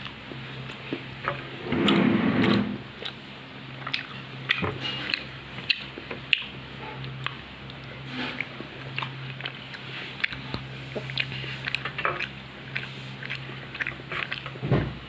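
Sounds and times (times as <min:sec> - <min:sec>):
mouth clicks and smacks: 0:03.8 - 0:14.6
muffled low thud: 0:14.6 - 0:15.0.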